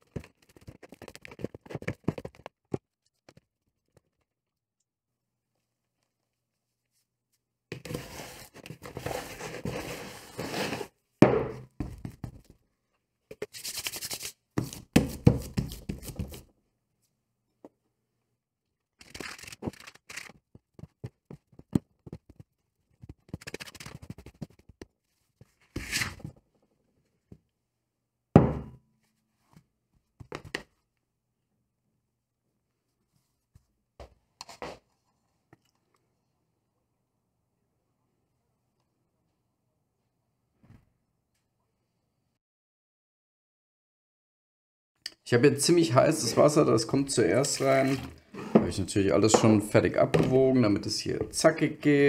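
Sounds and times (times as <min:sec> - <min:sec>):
dough scraping and tearing: 0:07.8 - 0:10.9, 0:19.0 - 0:21.0
dull thunks on wooden board: 0:11.2 - 0:12.0, 0:28.4 - 0:28.8.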